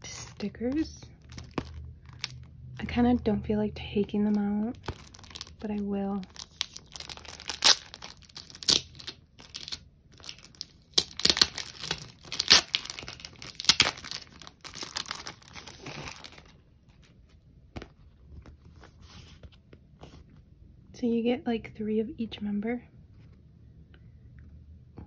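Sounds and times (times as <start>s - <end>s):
packaging crinkling and tearing: 0.4s - 2.9s, 4.2s - 17.3s.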